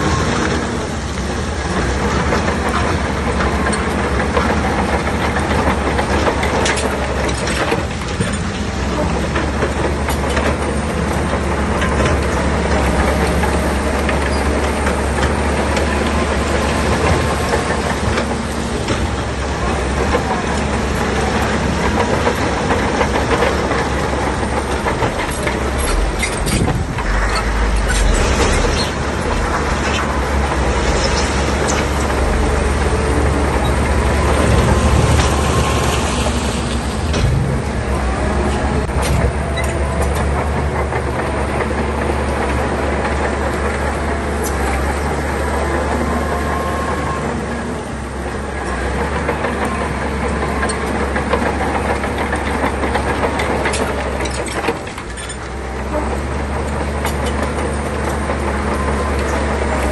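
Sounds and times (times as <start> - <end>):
bulldozer diesel engine running: 0.0 - 59.9
steel tracks clattering: 0.0 - 59.9.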